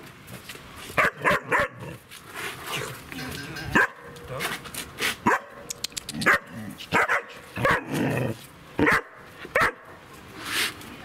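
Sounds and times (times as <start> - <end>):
puppy barking: 1.0 - 1.9, 3.7 - 4.1, 5.2 - 5.6, 6.2 - 8.0, 8.8 - 9.9.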